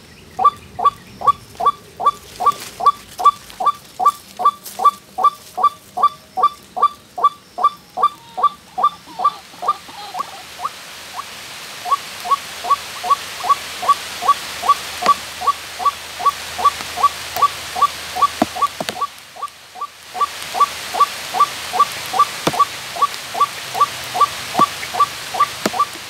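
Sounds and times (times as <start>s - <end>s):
waterhen calls: 0.0s - 26.0s.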